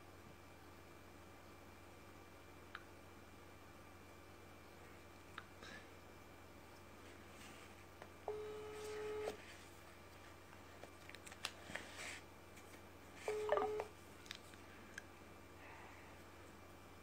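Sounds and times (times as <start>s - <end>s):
phone beeps: 8.3s - 9.3s, 13.3s - 13.9s.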